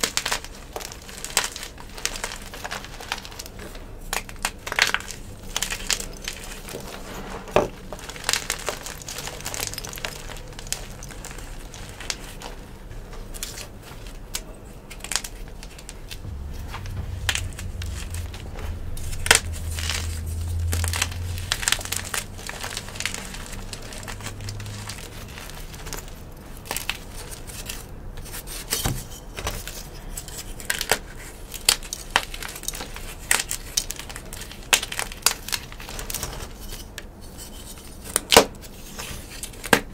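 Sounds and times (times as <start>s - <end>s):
chalk pieces snapping: 13.3s - 16.2s, 19.3s - 39.9s.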